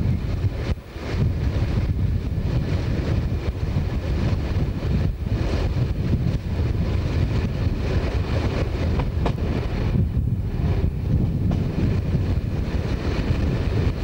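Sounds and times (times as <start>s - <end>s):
train wheels rumbling on rail: 0.0s - 14.0s
rail joint clicks: 5.4s - 14.0s.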